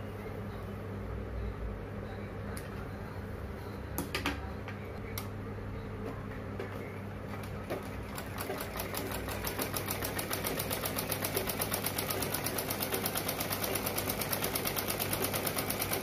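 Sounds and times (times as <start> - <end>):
sewing machine stitching: 7.6 - 16.0.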